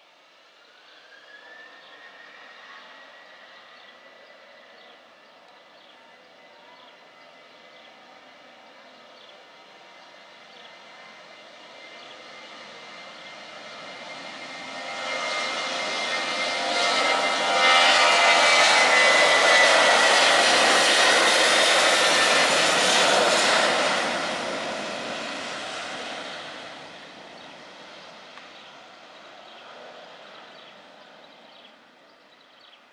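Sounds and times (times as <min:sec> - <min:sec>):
jet engine roar at takeoff: 0:00.0 - 0:32.9
high jet whine: 0:12.5 - 0:31.2.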